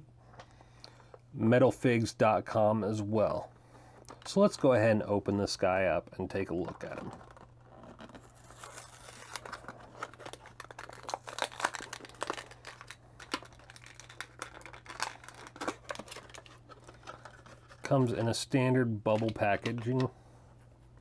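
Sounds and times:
plastic blister pack crinkling: 6.2s - 20.1s.

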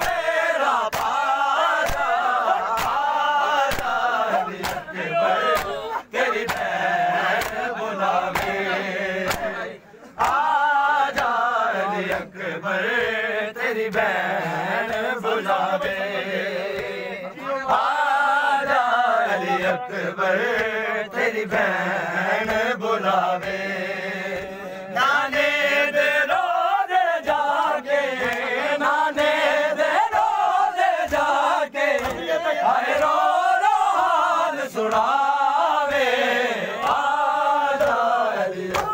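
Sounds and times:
men chanting a lament: 0.0s - 38.9s.

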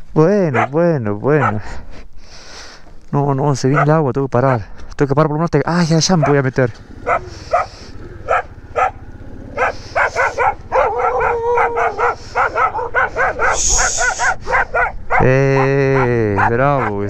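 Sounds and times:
dog crying: 0.5s - 0.8s, 3.7s - 4.6s, 6.1s - 17.0s
dog barking: 0.5s - 1.8s, 3.7s - 4.7s, 6.0s - 17.0s.

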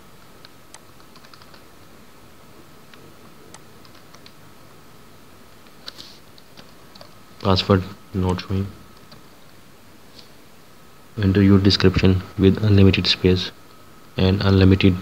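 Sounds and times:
steady low hiss: 0.0s - 15.0s
keyboard typing: 0.4s - 1.7s, 2.9s - 4.4s.

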